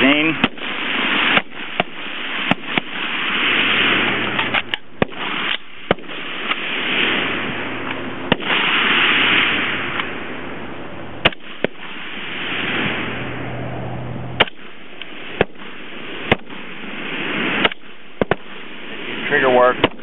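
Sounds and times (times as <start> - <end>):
rifle shots: 0.0 - 10.6, 11.2 - 13.3, 14.4 - 20.0
loud rushing noise: 0.0 - 20.0.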